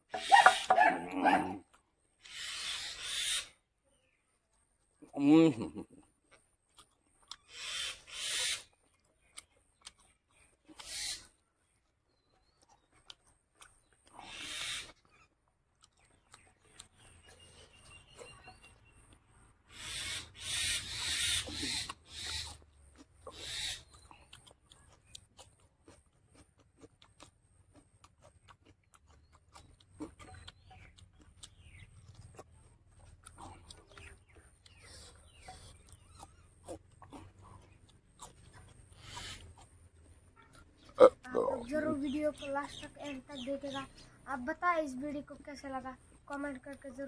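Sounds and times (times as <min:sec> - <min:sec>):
smacking and chewing: 0:00.1 - 0:02.3, 0:04.1 - 0:44.2
wet mouth clicks: 0:06.3 - 0:11.4, 0:20.8 - 0:41.6.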